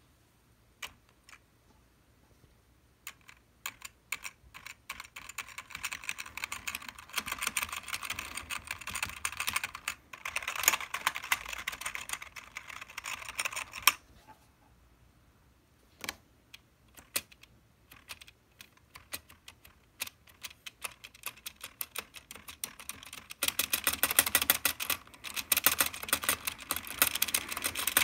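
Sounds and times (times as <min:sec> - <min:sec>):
keyboard keys clattering: 0:20.4 - 0:28.0.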